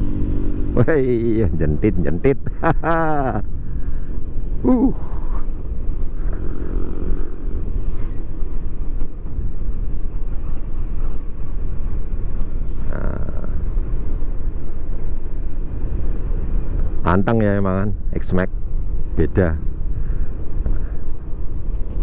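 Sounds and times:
scooter engine running: 0.0s - 0.8s
road noise: 0.0s - 22.0s
wind rumble on microphone: 0.0s - 22.0s.

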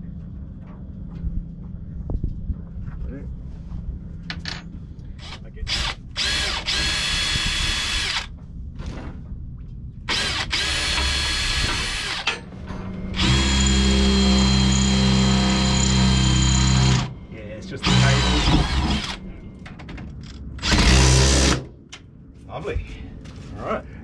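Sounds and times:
cordless drill running: 5.2s - 8.3s, 10.1s - 12.2s, 13.2s - 17.1s, 17.8s - 19.2s.

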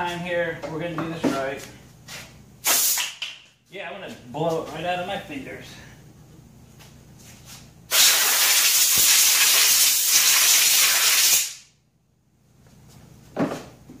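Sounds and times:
air hose hissing: 2.6s - 3.0s, 7.9s - 11.6s.

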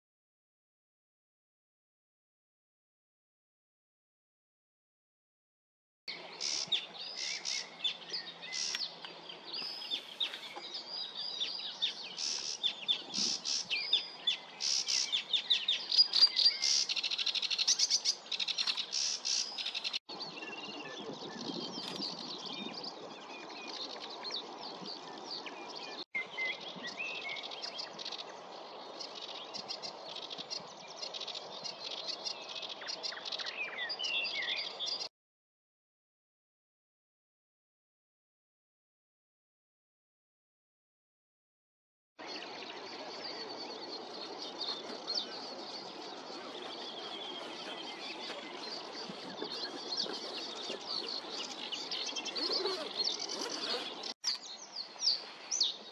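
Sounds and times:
bird singing rapid trills: 42.2s - 54.8s.

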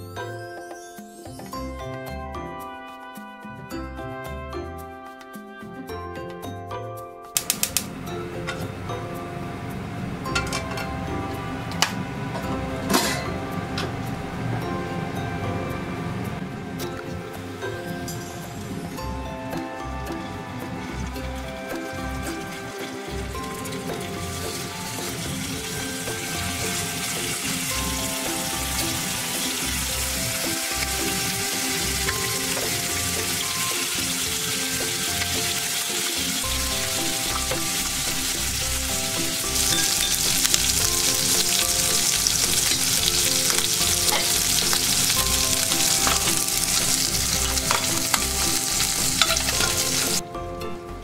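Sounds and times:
faint background music: 0.0s - 51.0s
chicken sizzling in frying pan: 7.4s - 8.0s, 20.7s - 50.2s.

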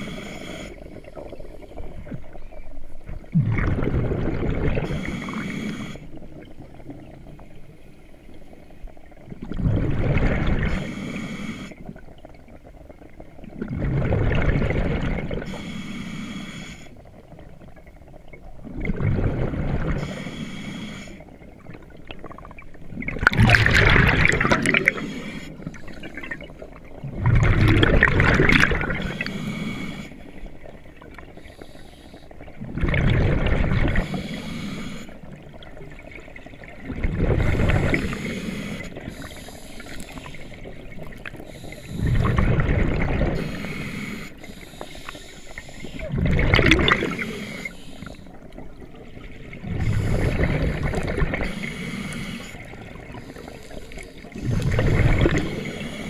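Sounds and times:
breathing through a regulator: 0.0s - 1.8s, 4.8s - 6.4s, 10.6s - 12.1s, 15.3s - 17.2s, 19.8s - 21.6s, 23.7s - 26.7s, 28.2s - 32.6s, 33.8s - 35.7s, 37.3s - 42.6s, 43.2s - 56.0s
exhaled bubbles rushing: 3.1s - 5.1s, 9.0s - 10.9s, 12.0s - 15.5s, 17.6s - 20.1s, 21.4s - 29.3s, 32.4s - 34.2s, 35.3s - 38.3s, 40.2s - 43.5s, 45.9s - 47.4s, 48.5s - 51.6s, 54.2s - 55.9s.

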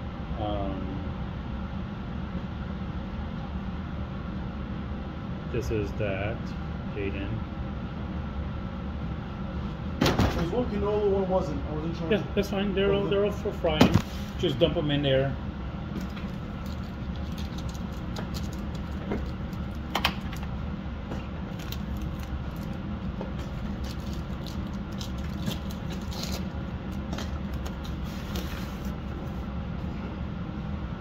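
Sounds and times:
foil pack crinkling: 16.0s - 20.5s, 21.4s - 22.8s, 23.4s - 28.9s
cards sliding and flipping: 27.2s - 29.0s.

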